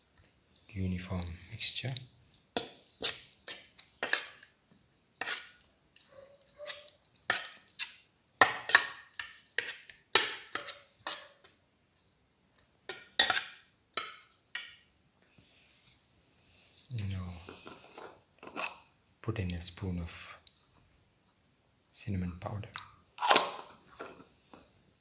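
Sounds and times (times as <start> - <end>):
metal spoon scraping a bowl: 2.6 - 4.5, 5.2 - 5.6, 6.4 - 11.5, 12.9 - 14.6, 17.5 - 18.8.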